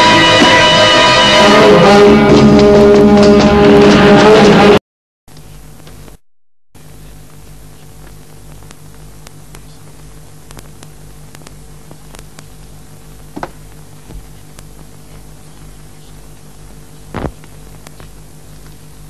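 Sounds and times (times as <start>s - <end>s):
film soundtrack hum and hiss: 6.8s - 19.0s.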